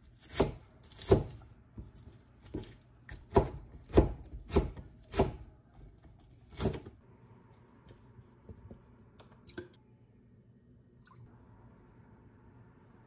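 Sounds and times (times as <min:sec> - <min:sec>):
knife chopping on cutting board: 0:00.2 - 0:05.4, 0:06.5 - 0:06.9.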